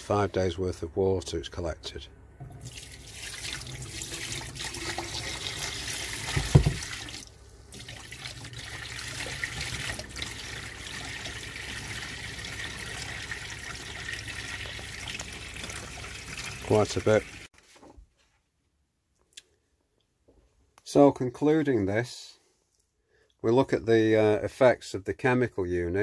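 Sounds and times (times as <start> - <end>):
water pouring into a sink: 2.5 - 17.5.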